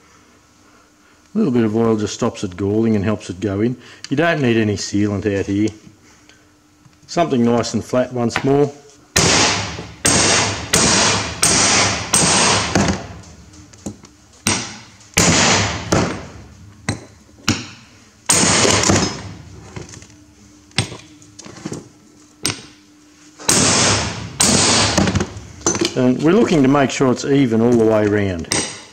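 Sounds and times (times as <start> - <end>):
hammer striking steel disc: 9.2 - 13.1, 14.4 - 19.4.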